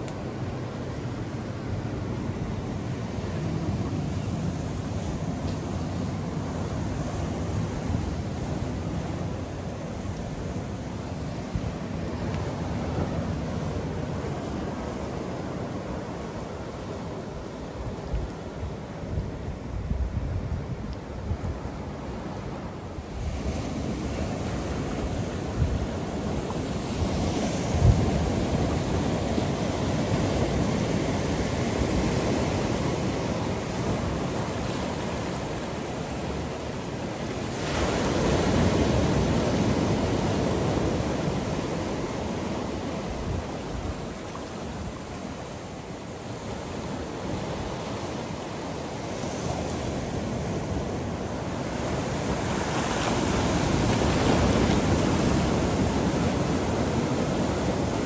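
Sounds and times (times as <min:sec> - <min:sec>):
surf washing over rocks: 0:00.0 - 0:58.0
wind buffeting microphone: 0:17.9 - 0:36.6.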